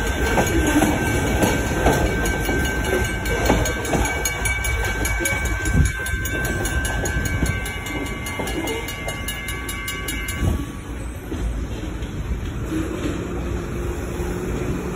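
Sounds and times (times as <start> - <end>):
high-pitched ringing: 0.0 - 11.4
train wheels rumbling and clacking: 0.0 - 14.9.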